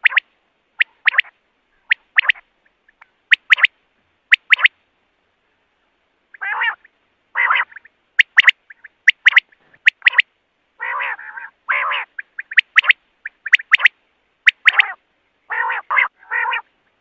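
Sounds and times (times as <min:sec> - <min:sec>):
quail singing: 0:00.0 - 0:04.8, 0:06.3 - 0:17.0
raspy bird notes: 0:00.8 - 0:03.7, 0:04.3 - 0:04.7, 0:06.3 - 0:16.6.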